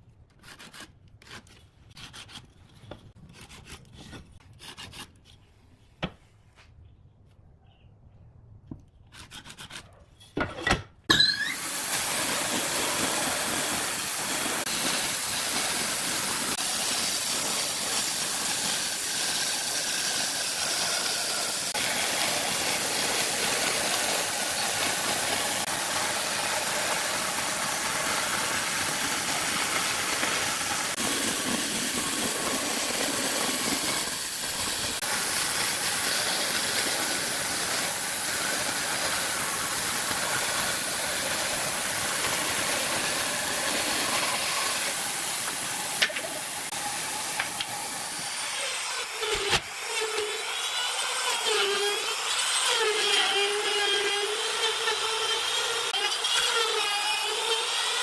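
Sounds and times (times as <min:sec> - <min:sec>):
bandsaw blade hissing through wood: 0:11.4 - 0:56.6
bandsaw motor hum: 0:11.5 - 0:58.0.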